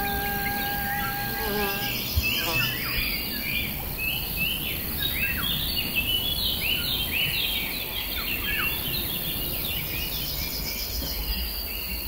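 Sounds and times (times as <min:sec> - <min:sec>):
high insect buzz: 0:00.0 - 0:04.1
small birds chirping: 0:00.0 - 0:12.0.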